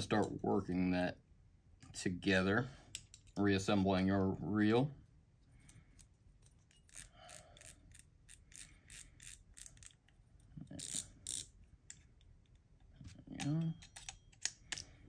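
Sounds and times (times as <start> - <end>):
fly reel clicking and ratcheting: 6.8 - 10.0, 10.8 - 11.5.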